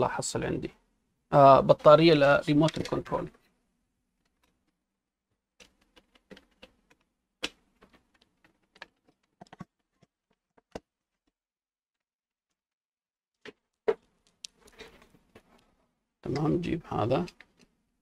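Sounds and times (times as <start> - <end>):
small objects clicking and knocking: 1.8 - 3.5, 5.6 - 11.4.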